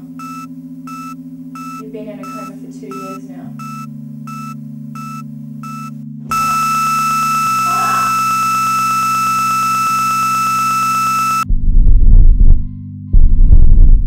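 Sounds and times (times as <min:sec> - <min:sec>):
steady low drone: 0:00.0 - 0:10.3, 0:11.2 - 0:14.0
heart monitor flatline tone: 0:00.0 - 0:14.0
heart monitor beep: 0:00.2 - 0:12.6
loud low pounding: 0:11.5 - 0:14.0.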